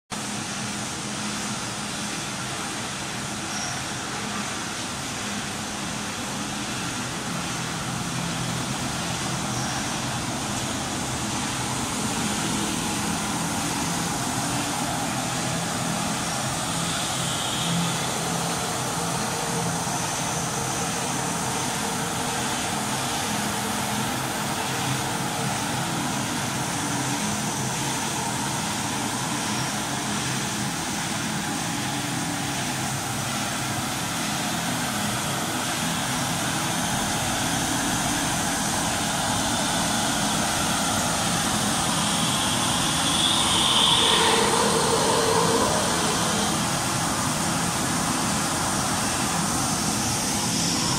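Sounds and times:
washing machine mechanical rush: 5.1 - 50.9
faint low hum: 36.9 - 48.3.

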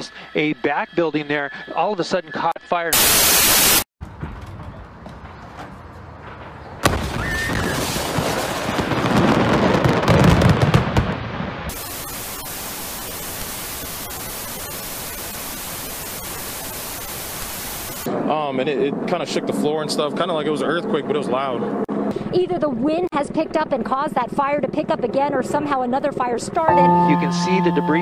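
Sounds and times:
tv static bursts: 2.9 - 3.9, 11.7 - 18.1
fireworks blast: 3.0 - 18.2
fireworks crackling and popping: 6.2 - 18.1.

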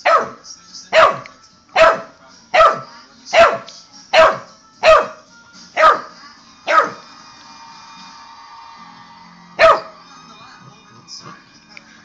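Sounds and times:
puppy barking: 0.0 - 5.2, 5.8 - 7.0, 9.6 - 10.0.

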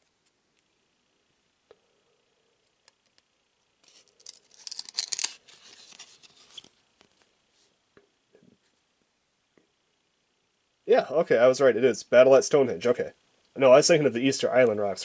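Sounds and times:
wrapper crinkling and tearing: 3.9 - 6.7.

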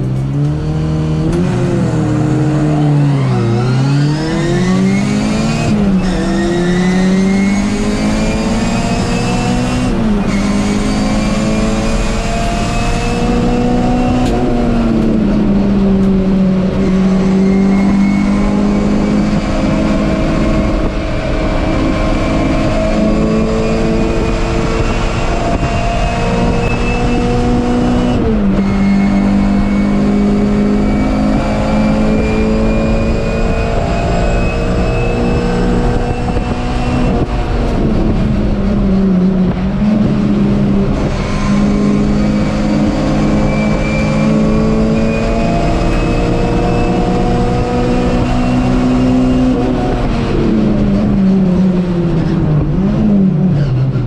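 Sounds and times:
race car engine accelerating: 0.0 - 54.0.

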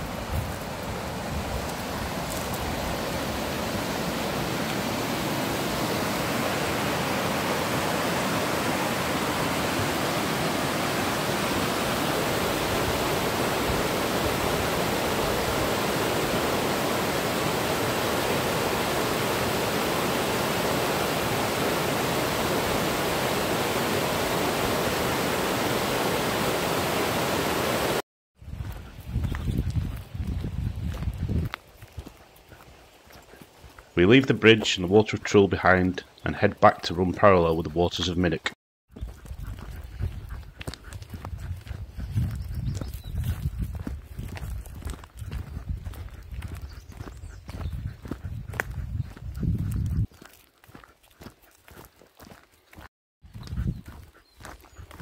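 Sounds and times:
water rushing over rapids: 0.0 - 28.0
footsteps on gravel: 0.3 - 4.9, 28.6 - 34.8, 38.9 - 55.0.

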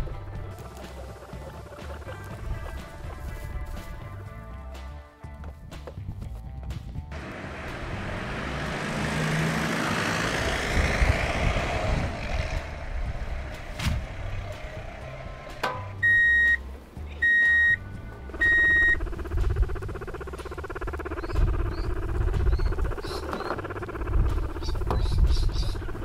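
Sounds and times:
broad rushing noise: 7.1 - 15.6
truck reversing alarm beeps: 16.0 - 16.6, 17.2 - 19.0.

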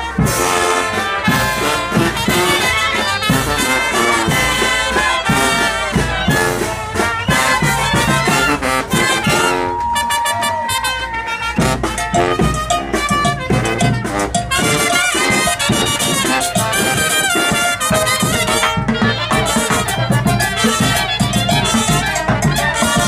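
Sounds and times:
brass band playing: 0.0 - 23.0
sousaphone bass line: 11.6 - 23.0.

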